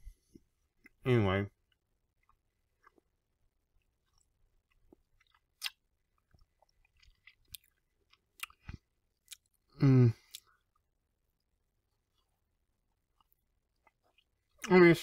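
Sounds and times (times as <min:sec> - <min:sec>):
eating clicks and crackles: 0:03.8 - 0:09.6.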